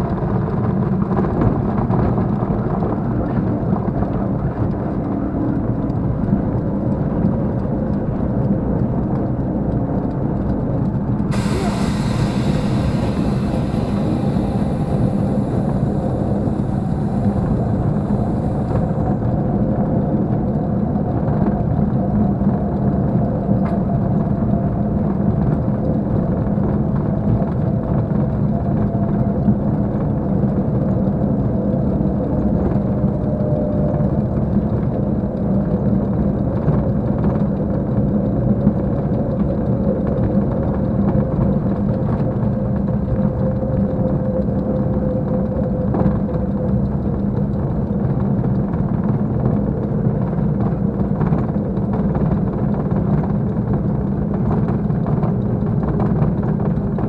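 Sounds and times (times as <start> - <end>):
piston aircraft engine drone: 0.0 - 57.0
hiss: 11.3 - 19.3.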